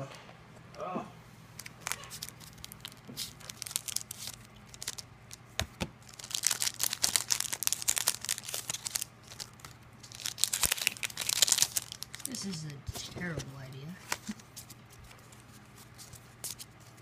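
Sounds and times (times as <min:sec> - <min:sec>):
foil wrapper crinkling and tearing: 0:01.6 - 0:12.6.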